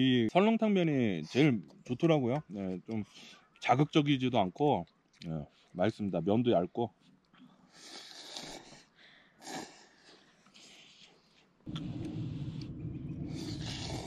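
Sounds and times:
loud steady low rumble: 0:11.7 - 0:14.0
slurping noodles: 0:13.3 - 0:14.0.

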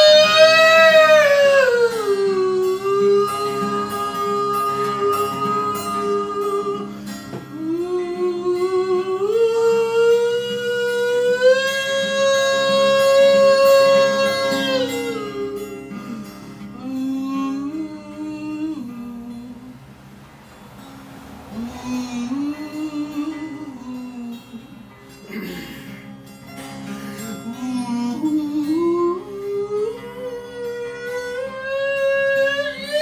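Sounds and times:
man singing wordlessly: 0:00.0 - 0:19.9, 0:21.5 - 0:25.7, 0:27.2 - 0:33.0
acoustic guitar: 0:00.0 - 0:33.0.

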